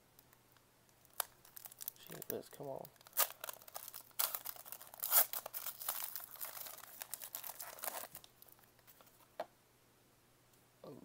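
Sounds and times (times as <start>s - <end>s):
foil wrapper crinkling and tearing: 1.0s - 8.9s.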